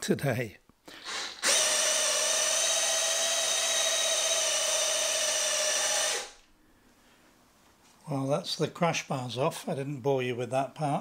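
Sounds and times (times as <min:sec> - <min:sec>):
electric drill-driver whine: 0:00.9 - 0:06.5.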